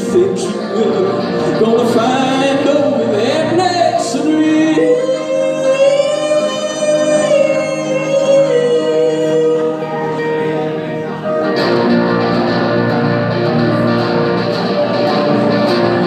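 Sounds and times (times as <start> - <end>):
man singing: 0.0 - 11.1
electric guitar: 0.0 - 16.0.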